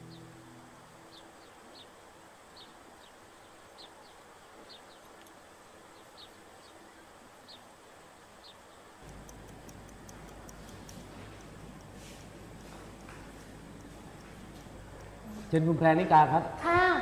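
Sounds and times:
low steady hum: 0:00.0 - 0:17.0
wall clock ticking: 0:09.0 - 0:15.6.

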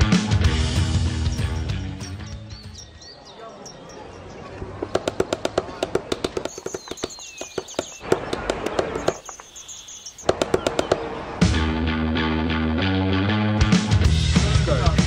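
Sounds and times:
birds chirping: 0:00.0 - 0:11.6
rapid sharp crackling clicks: 0:04.9 - 0:11.1.

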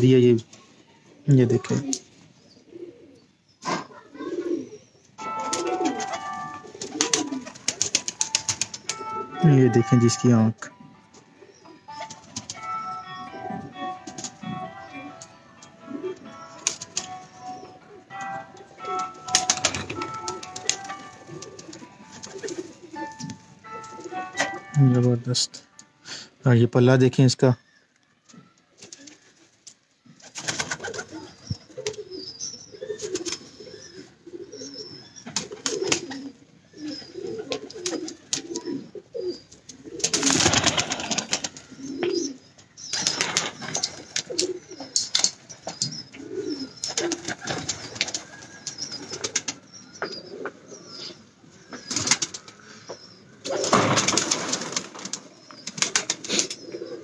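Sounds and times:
pigeons cooing: 0:01.5 - 0:09.4, 0:15.8 - 0:24.7, 0:30.1 - 0:57.0
rustling bursts: 0:40.0 - 0:41.6.

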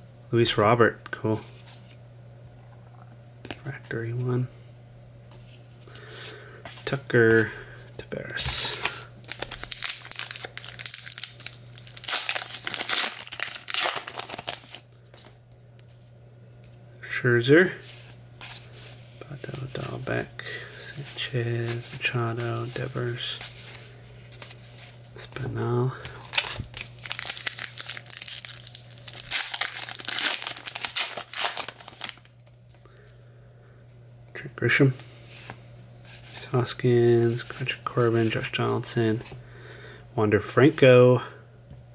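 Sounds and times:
plastic wrapper crinkling and tearing: 0:08.5 - 0:15.4, 0:26.0 - 0:32.5.

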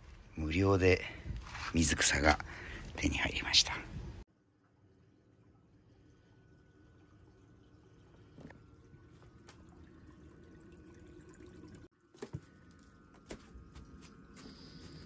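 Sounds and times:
faint water trickle: 0:04.3 - 0:15.0.

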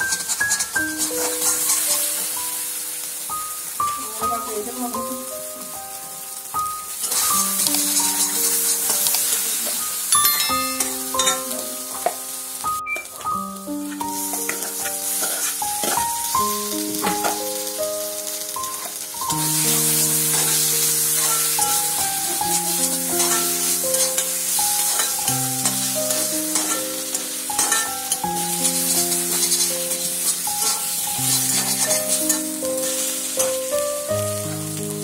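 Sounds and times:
paste sizzling in oil: 0:00.0 - 0:35.0
melody of held notes: 0:00.8 - 0:35.0
spatula stirring in wok: 0:23.2 - 0:33.5.

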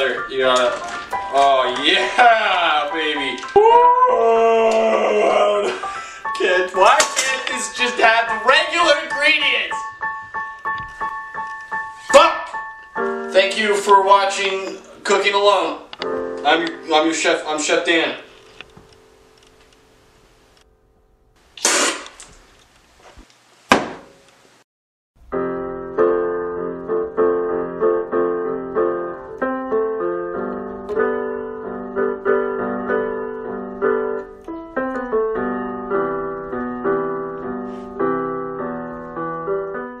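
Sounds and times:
piano music: 0:00.0 - 0:21.4, 0:25.2 - 0:40.0
sharp knock: 0:23.7 - 0:24.2.

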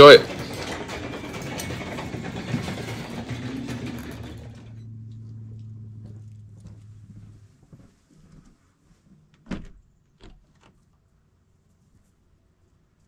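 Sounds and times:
handling clatter: 0:00.0 - 0:04.8
motor humming: 0:00.8 - 0:07.6.

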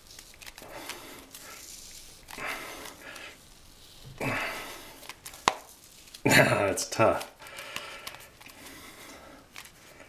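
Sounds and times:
man breathing heavily: 0:00.6 - 0:05.2, 0:07.4 - 0:10.0.

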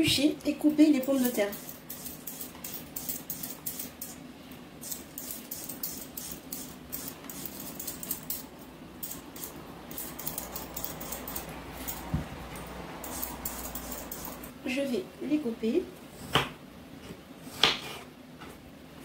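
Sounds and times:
peeler scraping potato skin: 0:01.0 - 0:04.2, 0:04.8 - 0:08.4, 0:13.0 - 0:14.5.

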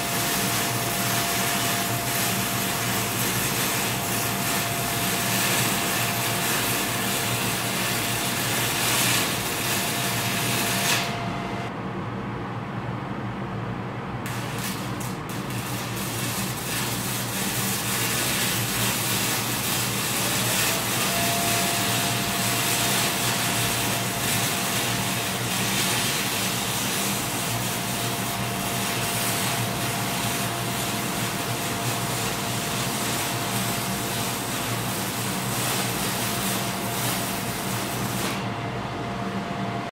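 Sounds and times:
welding arc crackling and sizzling: 0:00.0 - 0:11.7, 0:14.2 - 0:38.6.

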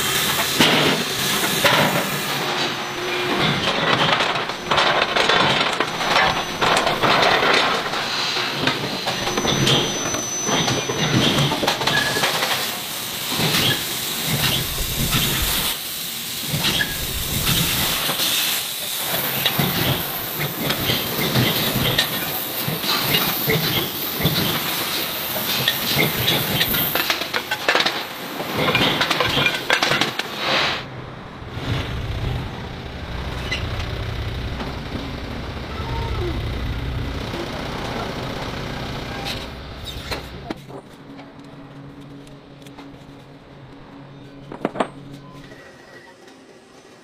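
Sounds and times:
low machine hum: 0:30.9 - 0:45.4.

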